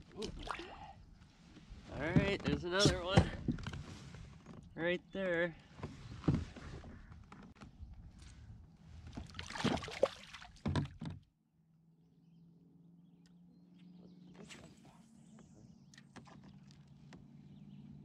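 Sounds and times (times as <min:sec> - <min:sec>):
water sloshing and splashing: 0:09.0 - 0:11.2.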